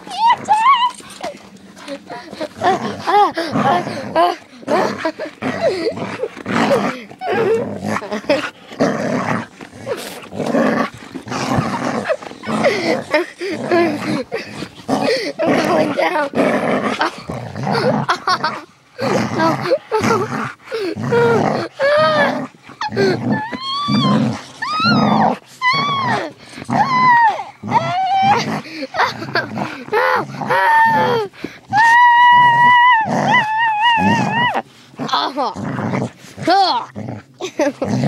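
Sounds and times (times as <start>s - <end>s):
high-pitched squealing cries: 0.0s - 1.4s, 21.1s - 29.2s, 29.9s - 34.6s
dog growling: 0.0s - 38.0s.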